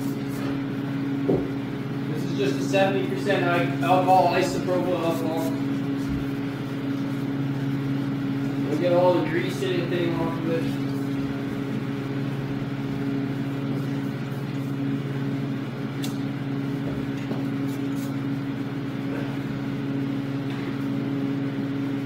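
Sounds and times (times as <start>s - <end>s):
steady machine hum: 0.0s - 22.0s.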